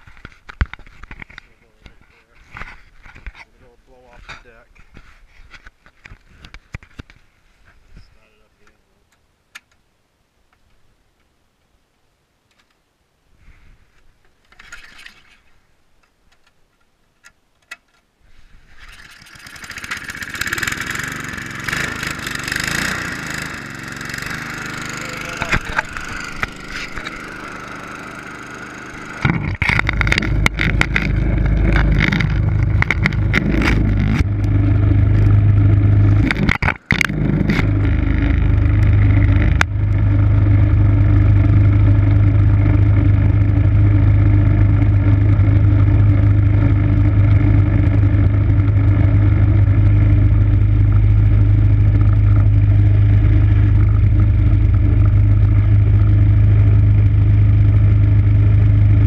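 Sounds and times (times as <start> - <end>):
snow blower engine running: 18.8 - 59.0.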